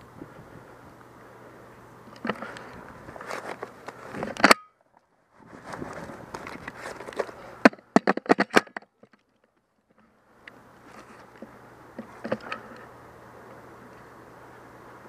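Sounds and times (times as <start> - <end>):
rustling gear: 2.2 - 4.4, 5.3 - 7.6.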